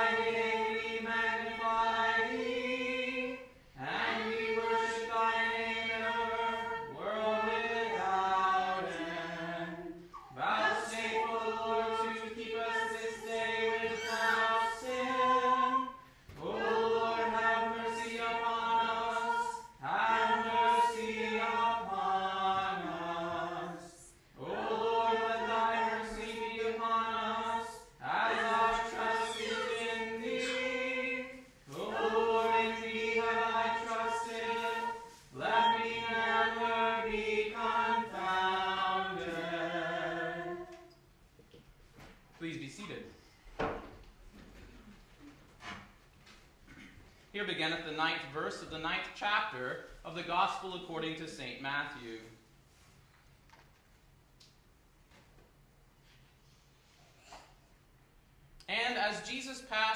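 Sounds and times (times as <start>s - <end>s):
voices chanting: 0.0s - 40.9s.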